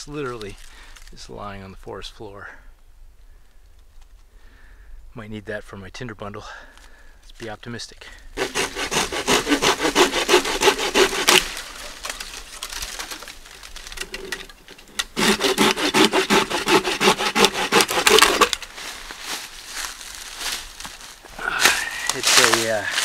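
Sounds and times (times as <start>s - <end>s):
hand saw cutting branch: 8.4s - 18.9s, 22.1s - 22.8s.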